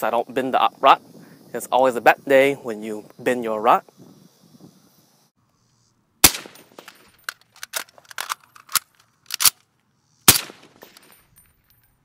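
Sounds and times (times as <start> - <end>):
suppressed rifle shots: 6.2 - 9.6, 10.2 - 11.2.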